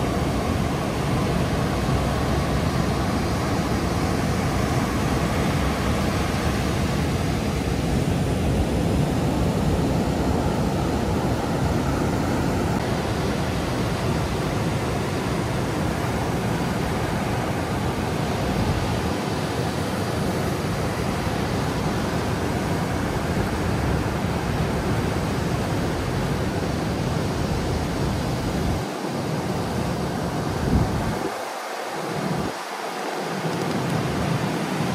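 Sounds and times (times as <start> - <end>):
ocean surf breaking: 0.0 - 34.9.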